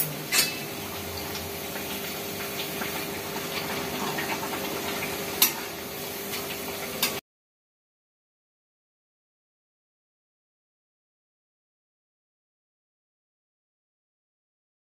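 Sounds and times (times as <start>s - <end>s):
metal utensils clinking: 0.0s - 0.8s.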